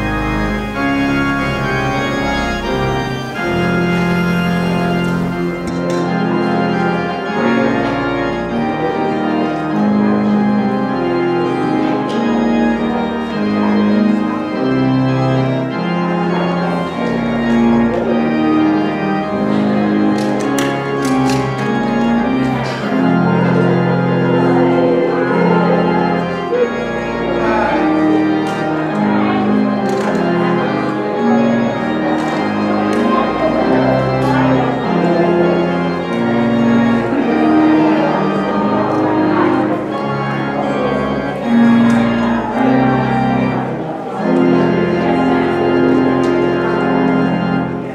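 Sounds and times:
electronic church organ chords: 0.0 - 47.9.

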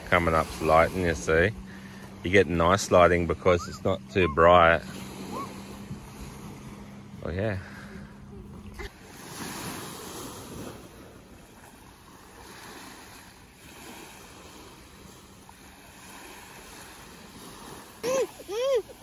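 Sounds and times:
small waves lapping on sand: 0.0 - 19.0.

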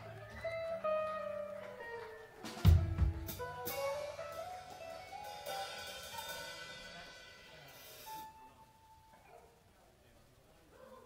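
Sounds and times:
electric guitar notes ringing: 0.0 - 7.4
drum hits with cymbal crashes: 2.6 - 8.4.

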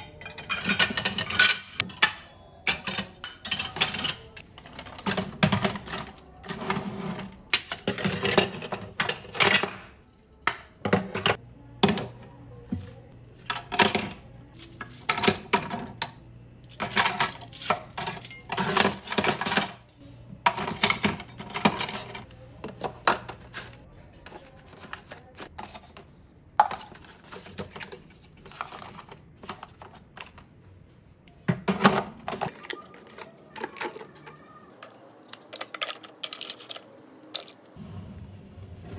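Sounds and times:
dishes clinking in a rack: 0.0 - 12.2, 16.8 - 23.7.

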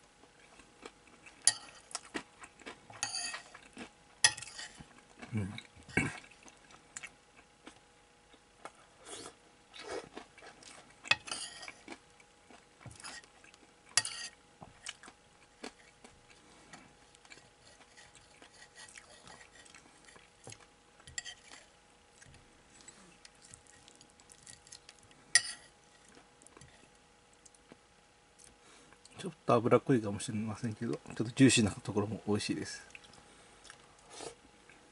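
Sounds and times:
metal spoon scraping ceramic plate: 3.0 - 3.5, 11.1 - 11.8, 14.0 - 14.4.

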